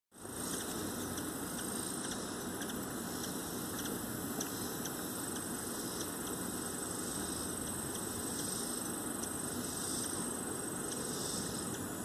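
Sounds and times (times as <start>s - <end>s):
outdoor background noise: 0.1s - 12.0s
thin steady high tone: 0.2s - 12.0s.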